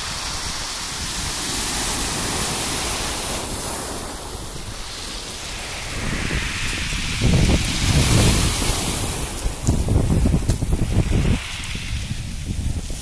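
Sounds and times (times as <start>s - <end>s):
surf washing over pebbles: 0.0s - 13.0s
wind buffeting microphone: 0.0s - 13.0s.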